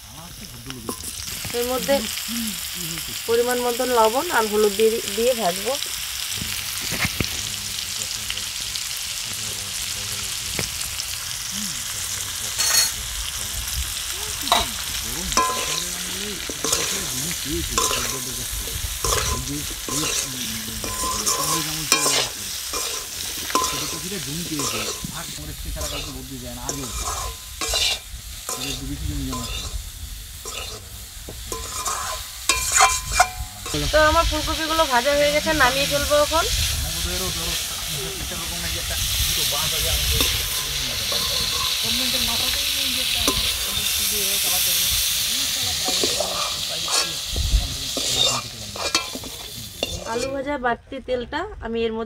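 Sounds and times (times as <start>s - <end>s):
cauliflower sizzling in oil: 0.0s - 50.5s
metal spatula scraping a pan: 12.5s - 13.0s, 14.4s - 29.8s, 30.4s - 30.9s, 31.5s - 33.9s, 39.0s - 44.0s, 45.1s - 47.3s, 47.9s - 50.5s.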